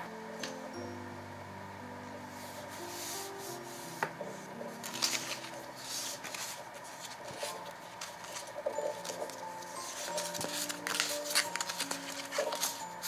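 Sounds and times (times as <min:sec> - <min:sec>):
soft background music: 0:00.0 - 0:13.0
paper rustling and crinkling: 0:02.7 - 0:13.0.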